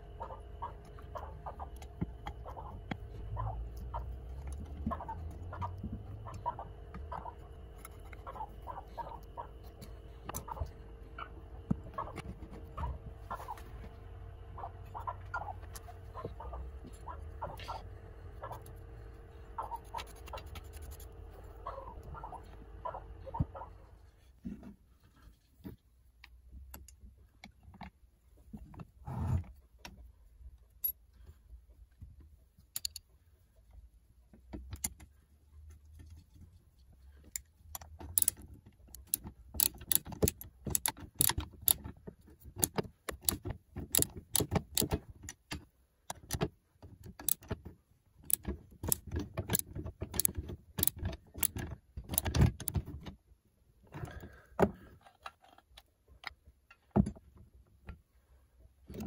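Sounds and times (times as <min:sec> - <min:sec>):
small metal parts clicking: 0:32.7 - 0:33.1, 0:37.2 - 0:47.6, 0:48.2 - 0:52.8.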